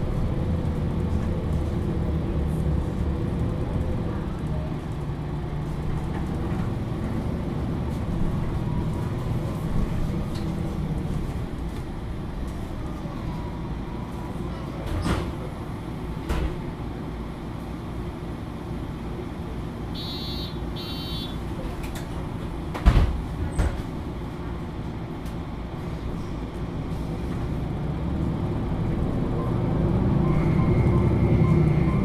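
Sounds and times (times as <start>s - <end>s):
bus engine idling: 0.0s - 32.0s
short electronic beeps: 20.0s - 21.4s.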